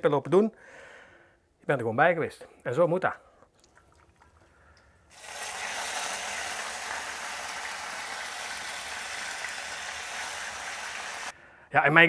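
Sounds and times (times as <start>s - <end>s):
pasta sizzling in oil: 5.1s - 11.3s.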